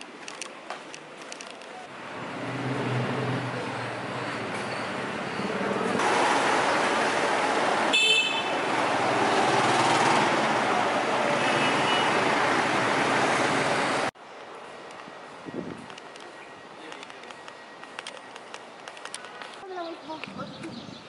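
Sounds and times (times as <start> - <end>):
city street traffic: 0.0 - 21.0.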